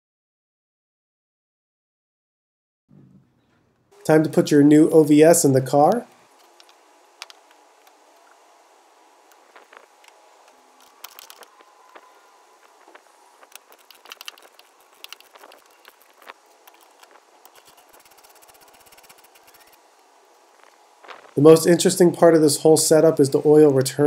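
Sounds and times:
hand tools clicking and scraping: 9.3s - 19.8s.

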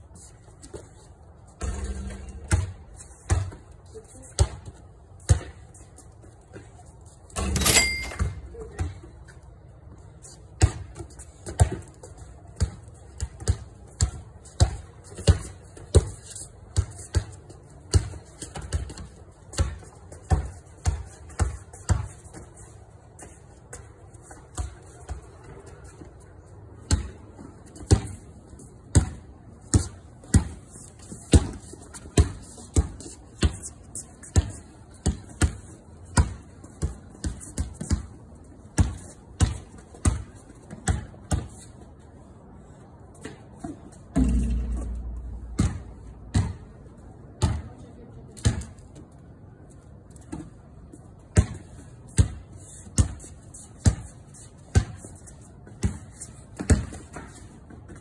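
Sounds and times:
basketball bouncing on concrete: 1.6s - 5.6s, 10.5s - 16.2s, 16.8s - 22.4s, 26.8s - 41.6s, 44.1s - 46.8s, 47.4s - 48.8s, 51.3s - 54.1s, 54.7s - 55.1s, 55.7s - 57.4s.

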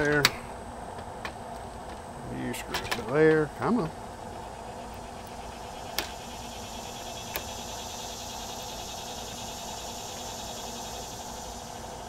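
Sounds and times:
insect buzz: 4.0s - 12.0s
sharp click: 7.3s - 7.5s.

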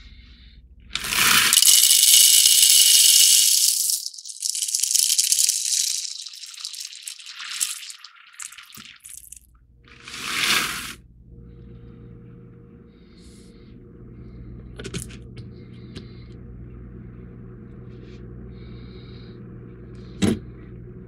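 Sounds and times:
coffee beans pattering into hopper: 1.0s - 9.4s.

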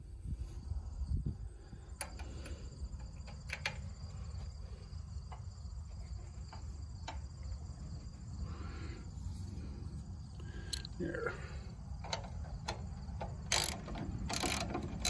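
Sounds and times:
crickets chirping: 0.0s - 15.0s
low steady rumble: 0.0s - 15.0s
faint metal clicks: 1.9s - 8.2s, 10.4s - 11.0s, 12.0s - 15.0s.

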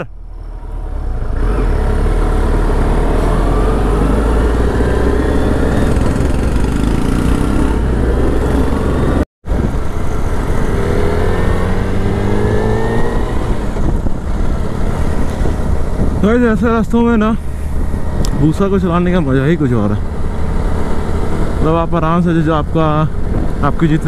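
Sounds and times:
motorcycle engine accelerating: 0.3s - 24.0s
wind rumble on microphone: 3.2s - 18.8s, 23.0s - 24.0s.

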